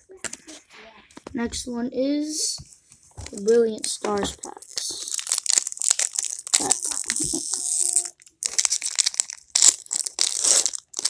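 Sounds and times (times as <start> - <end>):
wrapper crinkling and tearing: 4.2 - 11.0.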